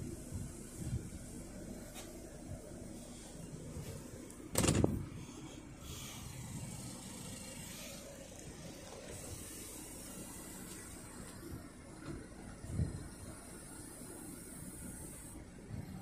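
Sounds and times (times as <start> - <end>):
low hum in car cabin: 0.0 - 16.0.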